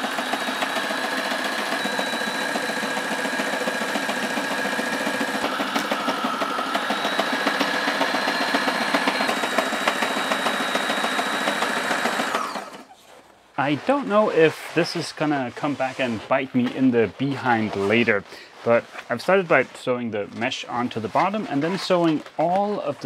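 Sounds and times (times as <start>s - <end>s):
sewing machine motor running: 0.0s - 13.0s
needle strokes rattling: 0.3s - 22.9s.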